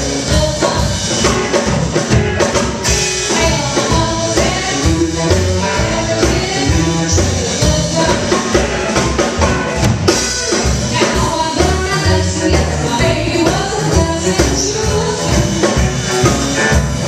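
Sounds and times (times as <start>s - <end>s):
live rhythm and blues band: 0.0s - 17.0s
woman singing into microphone: 0.1s - 1.0s, 3.3s - 8.6s, 10.9s - 15.9s.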